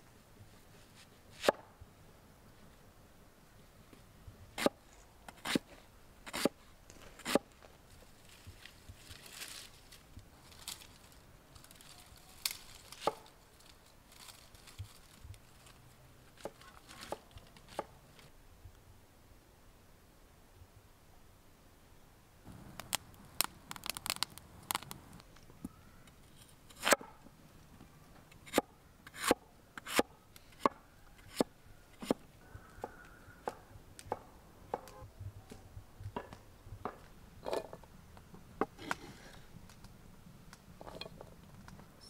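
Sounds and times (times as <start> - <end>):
light crackles: 6.8 - 18.8, 22.5 - 28.4, 37.8 - 42.0.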